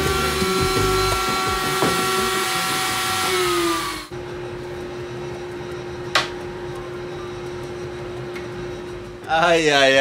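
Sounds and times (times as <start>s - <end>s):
router whining and cutting wood: 0.0s - 4.1s.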